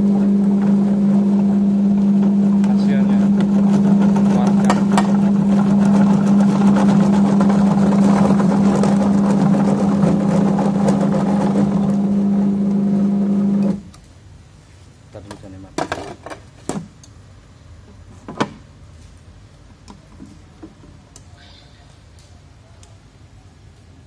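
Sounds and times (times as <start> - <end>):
electric motor humming: 0.0 - 13.8.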